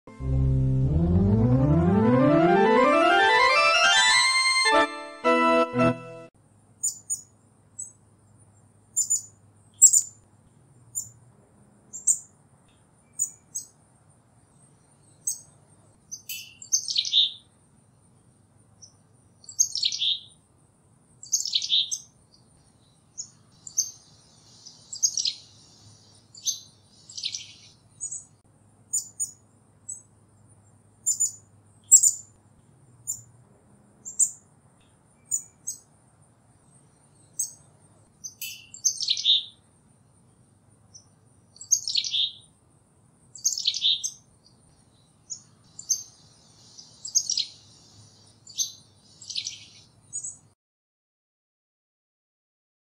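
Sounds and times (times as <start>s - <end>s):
chickadee falling lower notes: 0.1s - 6.3s.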